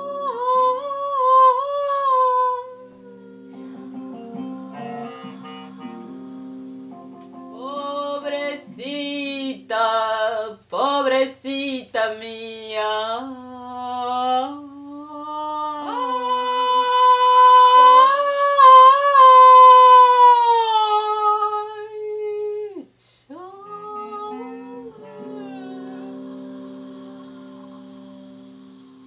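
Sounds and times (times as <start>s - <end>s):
acoustic guitar: 2.1s - 10.9s, 23.3s - 29.0s
woman singing held notes: 7.5s - 29.0s.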